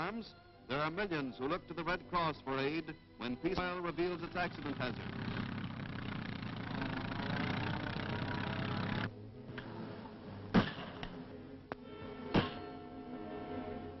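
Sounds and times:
tractor engine running: 0:03.5 - 0:09.1.

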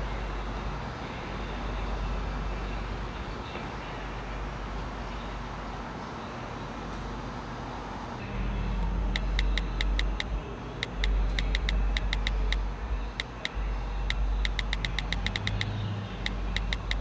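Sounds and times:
steady low rumble: 0:08.2 - 0:17.0
phone keyboard tap clicks: 0:09.2 - 0:12.6, 0:13.2 - 0:17.0.

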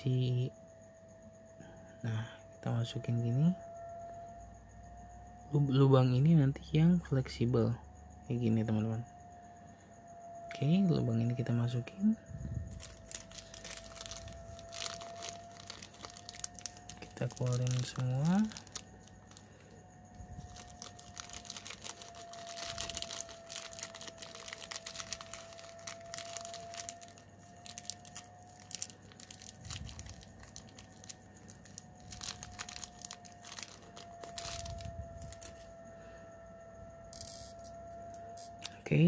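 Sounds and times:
plastic bag crinkling: 0:12.7 - 0:35.6.

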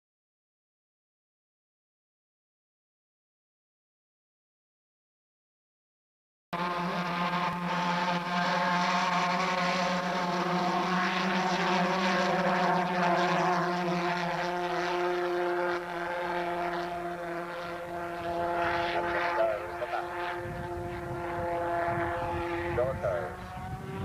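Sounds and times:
pulse jet engine buzzing: 0:06.6 - 0:24.0.

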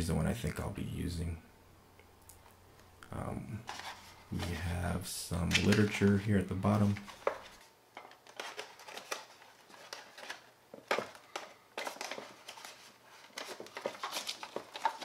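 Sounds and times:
paper and cardboard rustling: 0:03.6 - 0:15.0.

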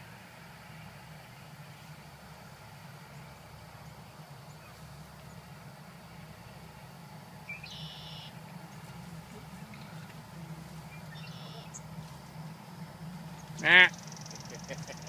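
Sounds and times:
steady low hum: 0:00.0 - 0:15.0
bird buzzy high call: 0:06.5 - 0:15.0.

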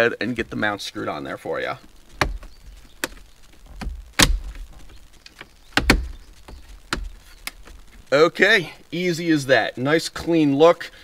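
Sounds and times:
dull thuds: 0:02.1 - 0:08.1.

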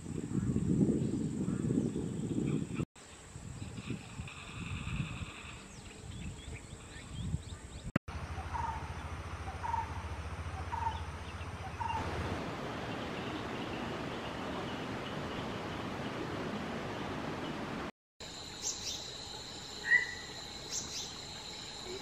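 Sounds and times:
bird calling: 0:05.4 - 0:12.1, 0:19.8 - 0:21.2.

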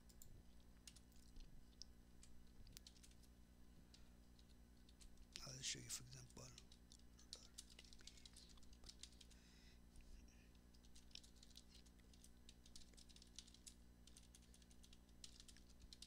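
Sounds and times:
keyboard typing: 0:00.0 - 0:01.5, 0:02.2 - 0:03.3, 0:06.4 - 0:09.4, 0:10.7 - 0:16.0
low steady hum: 0:00.0 - 0:16.0.

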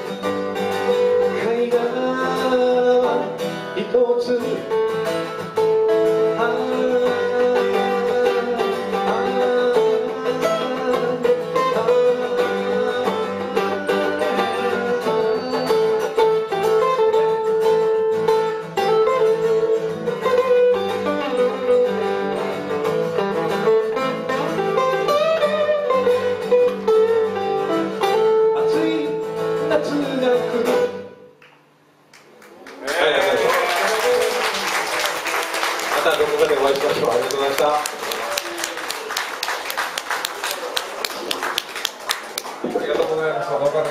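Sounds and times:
band playing guitars: 0:00.0 - 0:43.9
man singing: 0:01.1 - 0:04.9, 0:06.0 - 0:16.5, 0:28.6 - 0:31.2.

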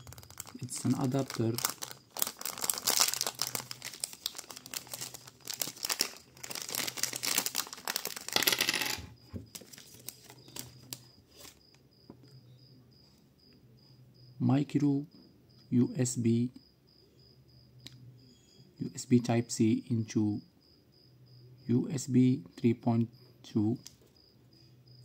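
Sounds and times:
plastic bag crinkling: 0:00.0 - 0:08.7, 0:09.5 - 0:11.6.

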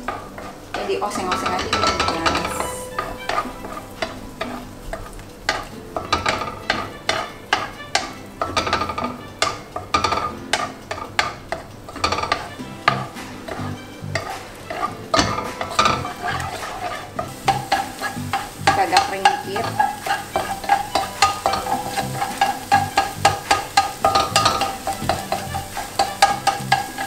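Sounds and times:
frying sizzle: 0:00.0 - 0:27.0
wooden spatula scraping a pan: 0:00.0 - 0:27.0.

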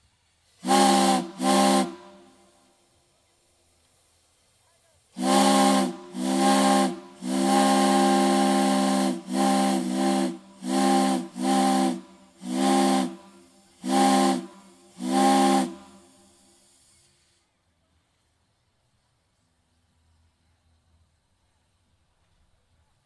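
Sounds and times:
steam hissing: 0:00.0 - 0:18.4
steam whistle blasts: 0:00.5 - 0:02.8, 0:05.2 - 0:17.3.

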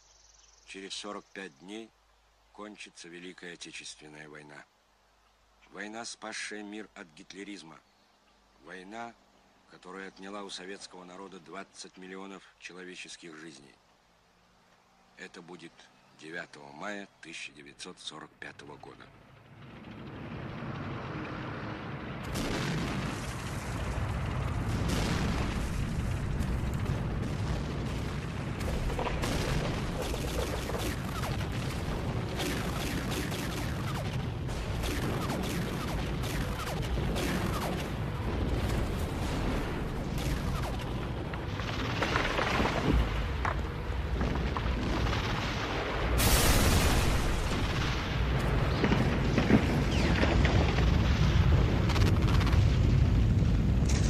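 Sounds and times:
low rumble of shell explosions: 0:18.7 - 0:54.0
loud blast: 0:19.5 - 0:42.0, 0:44.8 - 0:54.0
sharp gunfire cracks: 0:22.2 - 0:43.5, 0:44.5 - 0:51.0.

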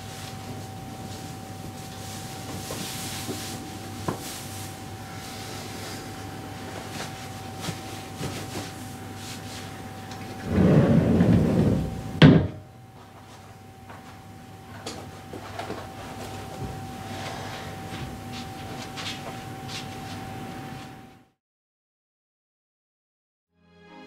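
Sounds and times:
sliding door rumbling on track: 0:10.3 - 0:12.6
door banging shut: 0:10.5 - 0:12.7.

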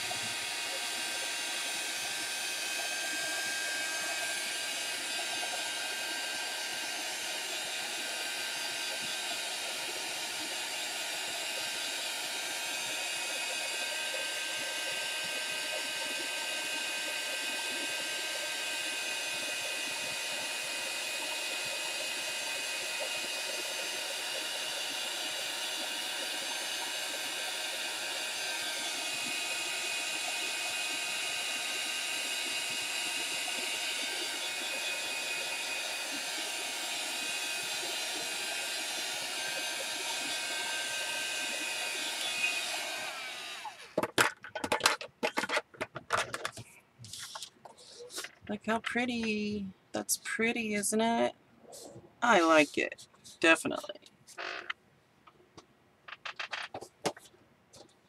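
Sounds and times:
heat tool fan whirring hiss: 0:00.0 - 0:44.0.

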